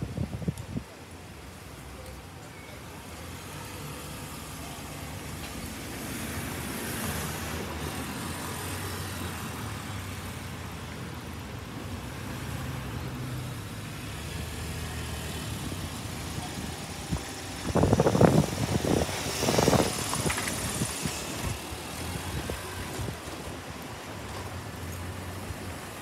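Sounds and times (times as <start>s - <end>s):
passing tyres hissing: 3.0s - 26.0s
low vehicle engine hum: 7.9s - 26.0s.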